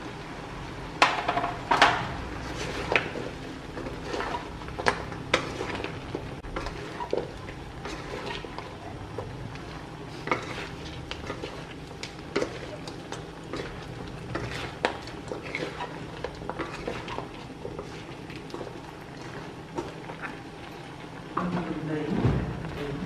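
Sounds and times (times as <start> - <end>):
spatula scraping metal wok: 2.3 - 8.7, 9.7 - 12.9, 13.5 - 18.1.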